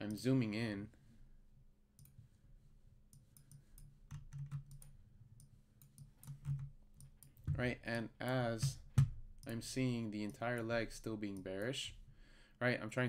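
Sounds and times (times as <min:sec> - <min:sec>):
computer mouse clicks: 0:02.0 - 0:02.2, 0:03.1 - 0:07.6.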